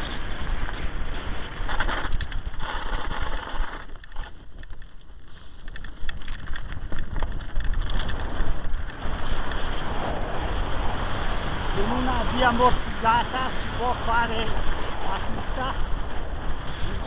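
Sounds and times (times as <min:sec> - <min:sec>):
bike rattling: 0:00.0 - 0:17.0
wind rumbling on microphone: 0:00.0 - 0:17.0.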